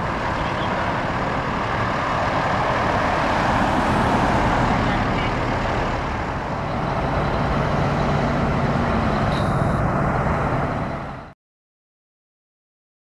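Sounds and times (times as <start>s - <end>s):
road traffic noise: 0.0s - 11.4s
truck engine idling: 2.5s - 11.3s.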